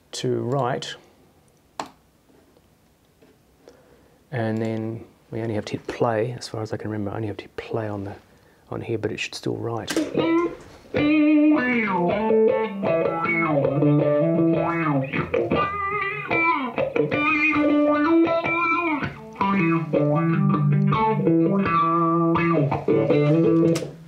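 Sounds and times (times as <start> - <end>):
electric guitar with wah effect: 10.0 - 24.0.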